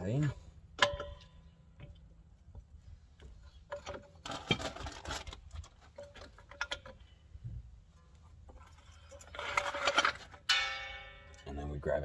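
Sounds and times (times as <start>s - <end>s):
jack metal clicks and knocks: 0.7s - 7.2s
metal clatter: 3.6s - 7.2s, 8.5s - 11.6s.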